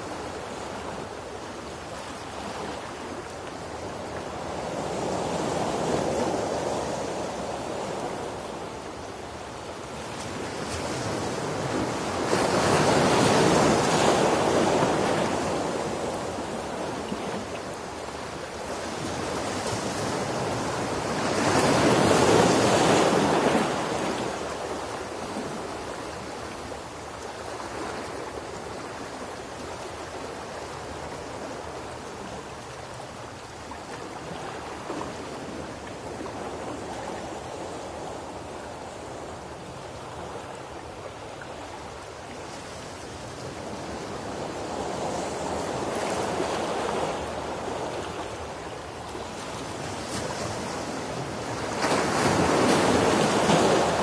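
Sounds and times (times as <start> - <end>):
ocean waves breaking: 10.0 - 26.8, 42.6 - 54.0.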